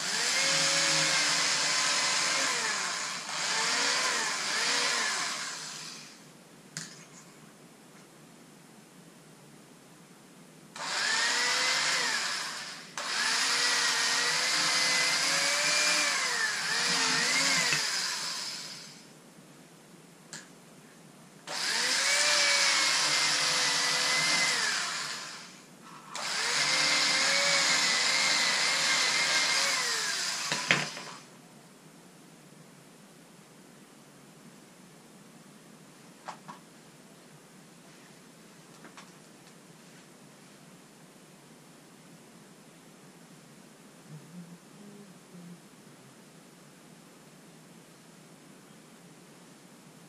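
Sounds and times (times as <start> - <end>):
electric power tool motor whine: 0.0 - 6.2, 10.8 - 19.0, 21.5 - 31.2.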